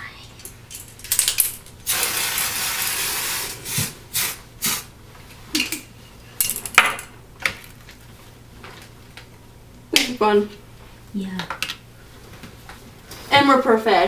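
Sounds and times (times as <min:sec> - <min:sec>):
aerosol can spraying: 0:01.8 - 0:04.9.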